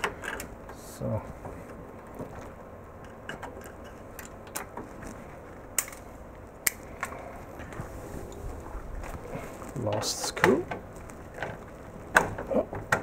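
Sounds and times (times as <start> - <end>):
steady background hum: 0.0 - 13.0
small metallic clicks: 3.0 - 4.9.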